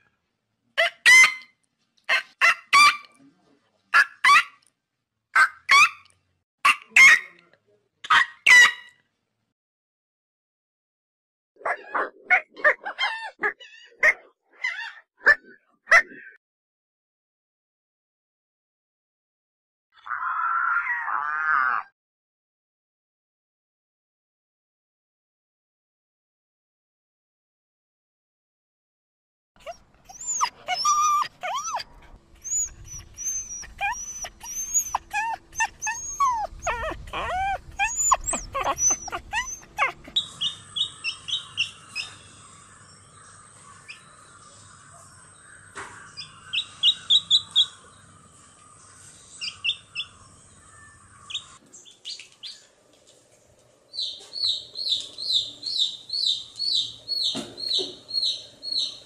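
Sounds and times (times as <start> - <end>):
young animal crying: 20.0 - 21.9, 29.6 - 42.2
chick peeping: 54.0 - 59.0.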